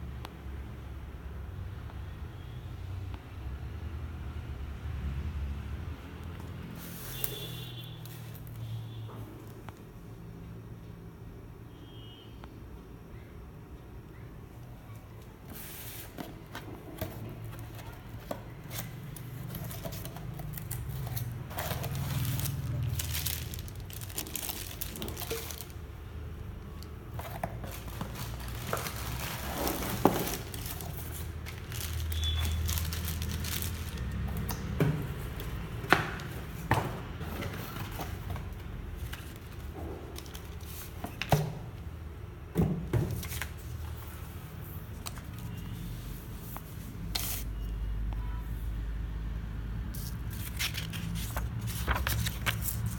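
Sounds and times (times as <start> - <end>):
cardboard and plastic crinkling: 15.5 - 26.0, 26.8 - 41.6, 50.0 - 52.9.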